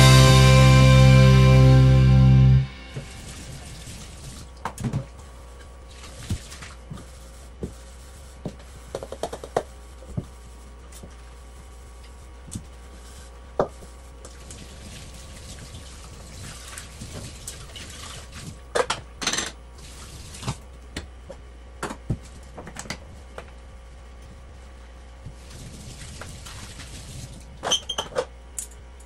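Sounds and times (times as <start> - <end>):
low hum: 0.0 - 4.6.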